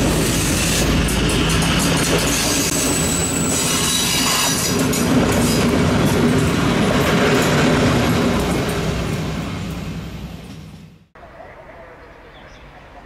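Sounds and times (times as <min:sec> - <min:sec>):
train wheels clattering on rails: 0:00.0 - 0:10.9
diesel locomotive engine drone: 0:00.0 - 0:13.0
high-pitched wheel squeal: 0:02.3 - 0:04.8.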